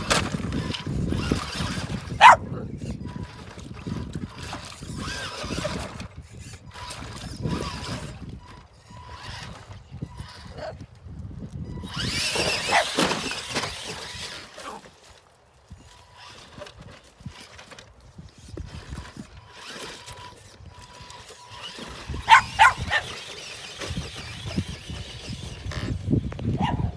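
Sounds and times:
dog barking and yelping: 0:02.2 - 0:02.6, 0:12.6 - 0:13.0, 0:22.3 - 0:23.2, 0:26.6 - 0:26.9.

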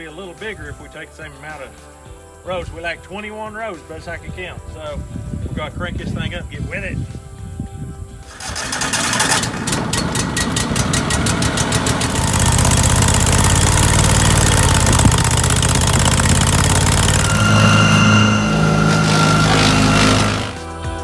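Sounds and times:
engine electric starter cranking: 0:08.3 - 0:20.7
wood chipper engine running: 0:08.3 - 0:21.0.

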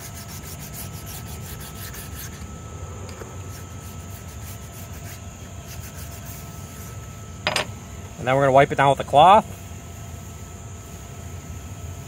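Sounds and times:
stone rubbing on steel blade: 0:00.0 - 0:02.5, 0:03.4 - 0:07.6.

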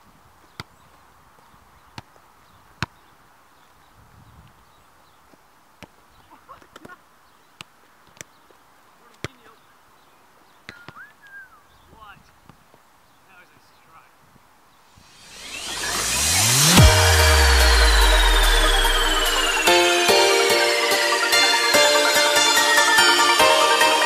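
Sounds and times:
faint outdoor ambience: 0:00.0 - 0:24.0
bird chirps: 0:09.4 - 0:12.0
whistled bird note: 0:10.7 - 0:11.7.

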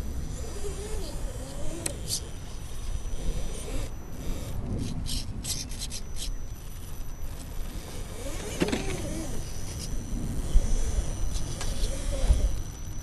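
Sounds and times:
wavering whine: 0:00.0 - 0:13.0.

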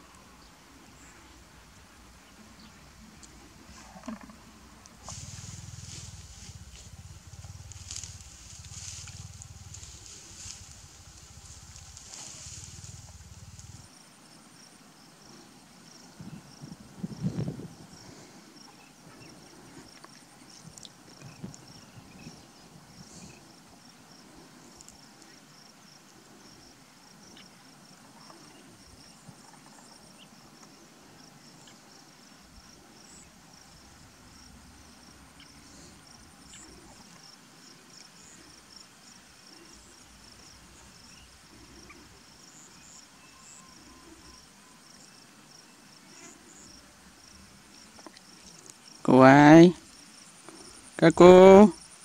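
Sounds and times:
insects trilling: 0:00.0 - 0:52.0
low rumble: 0:04.3 - 0:13.9.

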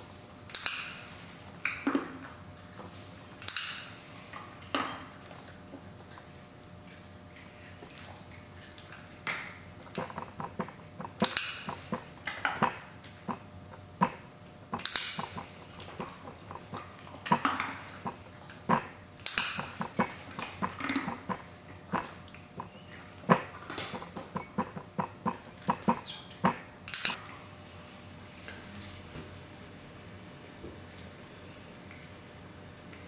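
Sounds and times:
dog licking: 0:05.3 - 0:27.2.

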